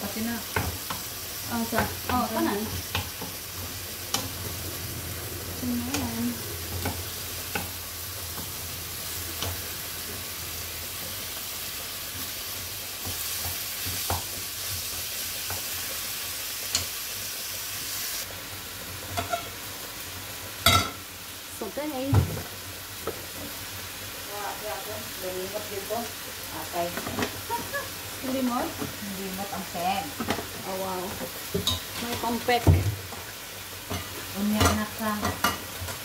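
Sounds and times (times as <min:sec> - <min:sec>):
meat sizzling in a pan: 0:00.0 - 0:36.0.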